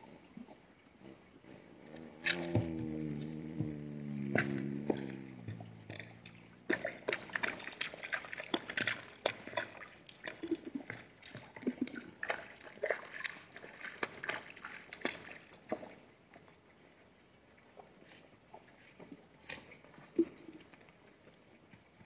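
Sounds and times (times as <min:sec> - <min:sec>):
animals slurping water: 0:00.0 - 0:22.0
splashing in shallow water: 0:02.0 - 0:16.1.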